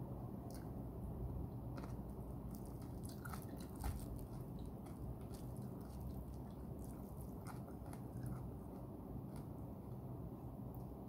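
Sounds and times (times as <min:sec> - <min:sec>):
chewing with wet mouth clicks: 0:01.8 - 0:09.5.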